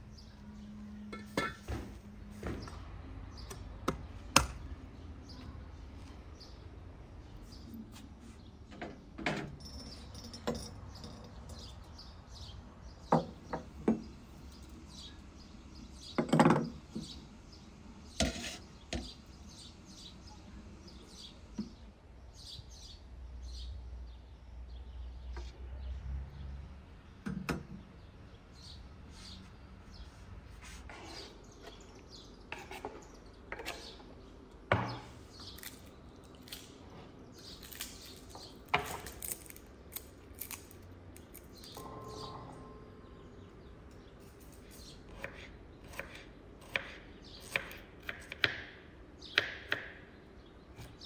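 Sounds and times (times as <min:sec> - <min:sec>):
small birds chirping: 0:00.0 - 0:09.0, 0:09.6 - 0:51.0
metal and porcelain clinking: 0:01.1 - 0:01.7, 0:09.3 - 0:11.9.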